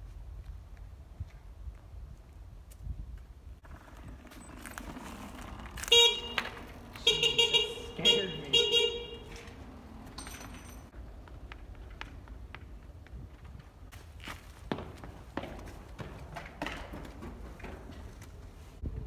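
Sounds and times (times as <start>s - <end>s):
motorcycle horn beeping: 5.8s - 9.6s.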